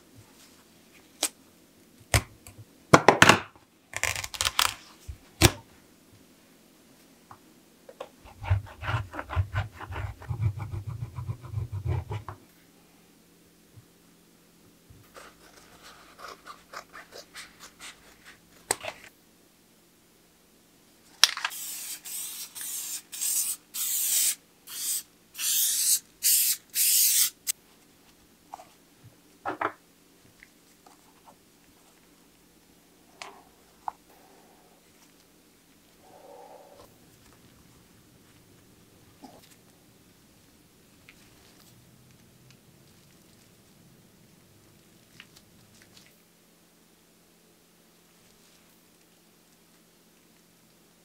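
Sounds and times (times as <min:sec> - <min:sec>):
cover ripping off: 0:04.0 - 0:04.8
aerosol spray hissing: 0:21.5 - 0:27.4.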